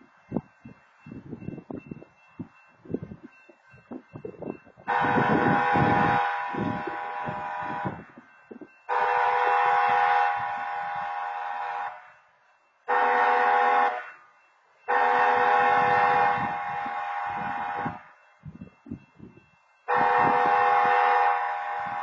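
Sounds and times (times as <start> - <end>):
train horn blasts: 4.9 - 8.2, 8.9 - 12.2, 12.9 - 14.2, 14.9 - 18.2, 19.9 - 22.0.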